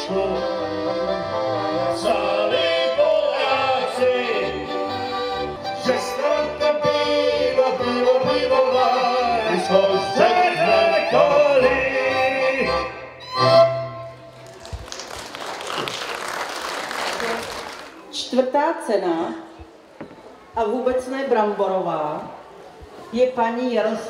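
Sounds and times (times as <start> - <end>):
man singing: 0.0 - 13.1
folk band playing: 0.0 - 14.7
applause: 14.3 - 18.0.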